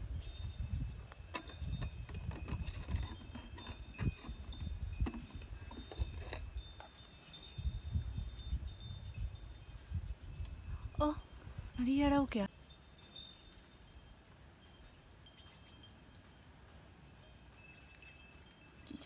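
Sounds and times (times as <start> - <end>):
wind rumble on microphone: 0.0 - 12.4
metallic chiming clinks: 0.2 - 19.0.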